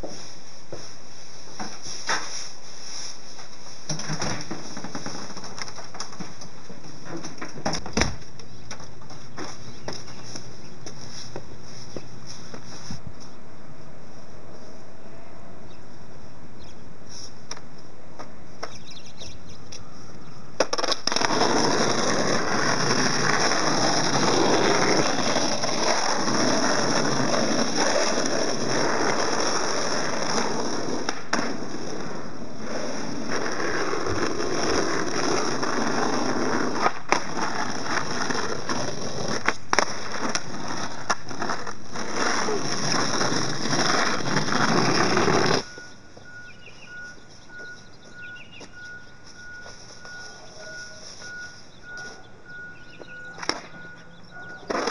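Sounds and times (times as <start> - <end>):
skateboard wheels rolling on asphalt: 0.0 - 13.4, 20.5 - 54.9
skateboard sharp clicks: 53.4 - 53.7.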